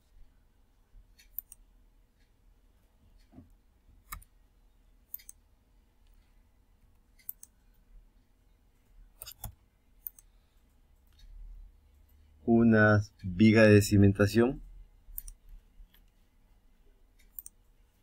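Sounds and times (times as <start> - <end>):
low room hum: 0.0 - 18.0
computer mouse and keyboard clicks: 1.2 - 1.6, 3.2 - 4.3, 5.1 - 5.4, 6.9 - 7.6, 9.2 - 10.3, 15.2 - 16.2, 17.2 - 17.6.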